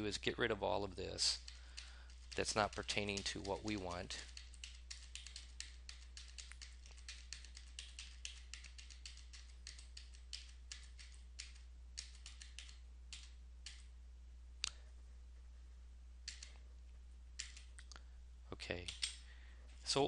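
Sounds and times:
steady low hum: 0:00.0 - 0:20.0
keyboard keys tapping: 0:01.3 - 0:13.8.

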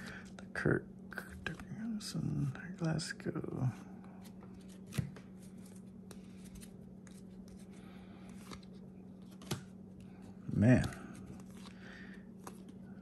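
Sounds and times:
steady low hum: 0:00.0 - 0:13.0
trading cards flipped by hand: 0:04.2 - 0:09.8, 0:12.4 - 0:13.0.

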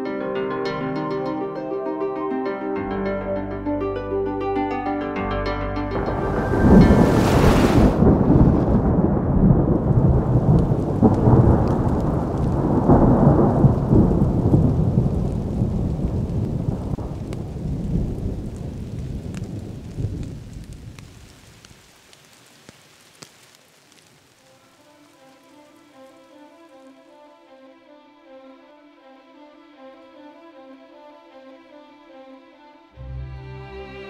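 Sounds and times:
thunder rumble: 0:05.9 - 0:21.6
rain: 0:06.0 - 0:27.5.

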